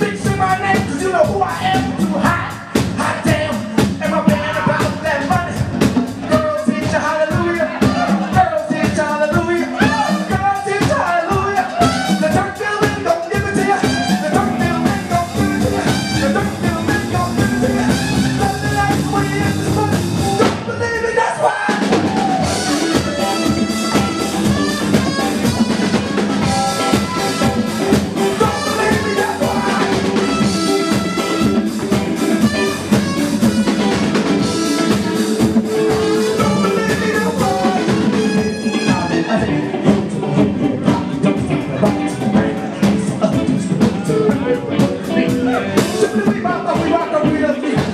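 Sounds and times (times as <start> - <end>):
bass guitar: 0.0 - 47.9
drum kit: 0.0 - 47.9
person singing: 0.0 - 47.9
trumpet: 9.7 - 10.6, 11.6 - 20.5, 21.5 - 40.0
electric guitar: 11.4 - 20.7, 21.8 - 47.9.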